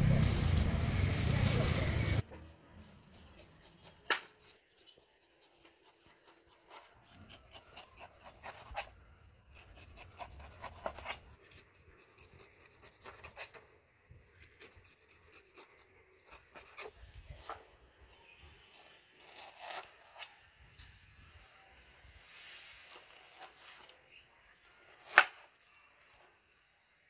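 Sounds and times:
knife cutting pineapple skin: 2.8s - 13.7s, 14.3s - 17.6s, 18.2s - 20.8s, 22.9s - 24.0s, 24.6s - 25.5s.

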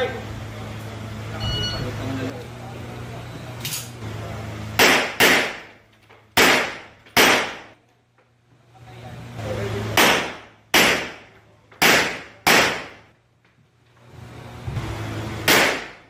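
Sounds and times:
pistol shots echoing indoors: 4.8s - 5.7s, 6.3s - 7.8s, 10.0s - 13.1s, 15.5s - 16.0s.

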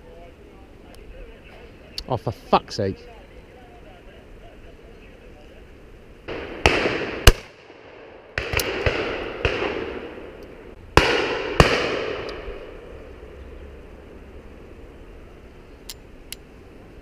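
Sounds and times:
shotgun shots echoing: 6.3s - 10.4s, 11.0s - 12.8s.

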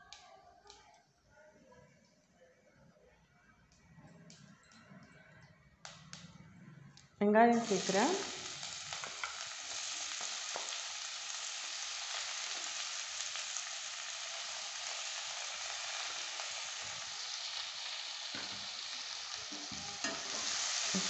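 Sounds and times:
onions sizzling in hot oil: 7.5s - 21.0s.

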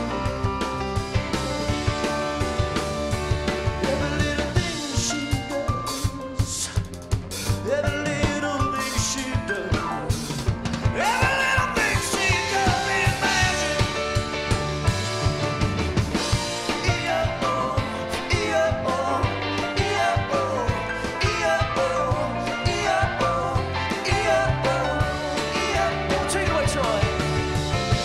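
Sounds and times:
electric guitar: 0.0s - 6.1s, 9.6s - 28.0s
bass guitar: 0.0s - 28.0s
drum kit: 0.0s - 28.0s
person singing lead vocal: 3.6s - 14.3s, 16.6s - 27.5s.

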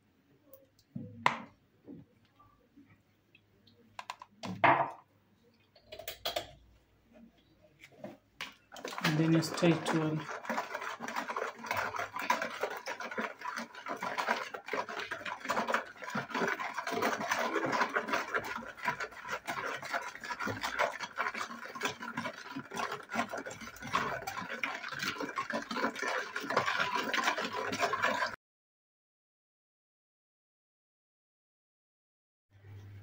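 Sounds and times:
whisk scraping against bowl: 8.7s - 28.4s.

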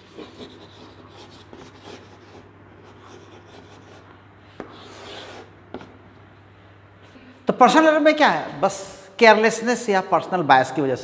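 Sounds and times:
chalk scratching on chalkboard: 0.0s - 5.9s
steady low hum: 0.0s - 10.6s.

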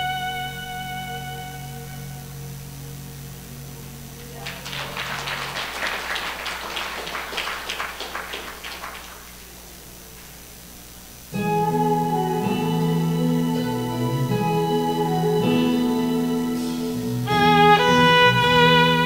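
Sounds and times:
instrumental backing track: 0.0s - 4.4s, 11.3s - 19.0s
rapid clap-like noise: 4.2s - 10.4s.

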